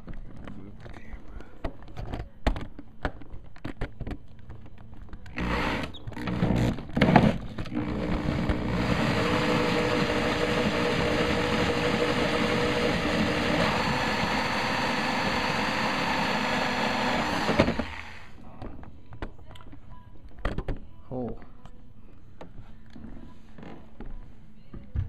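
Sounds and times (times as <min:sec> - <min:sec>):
power drill hole saw cutting: 0:05.4 - 0:18.4.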